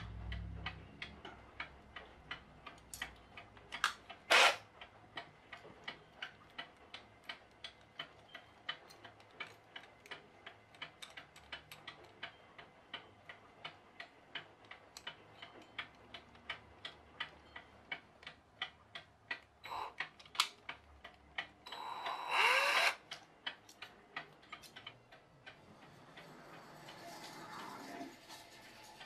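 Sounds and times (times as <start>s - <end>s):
steady regular ticking: 0.0s - 29.0s.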